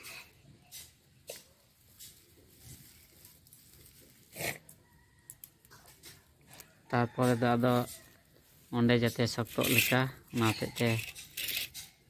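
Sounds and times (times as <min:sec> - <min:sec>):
dry grass stalks rustling: 0:01.2 - 0:06.8, 0:07.4 - 0:09.7.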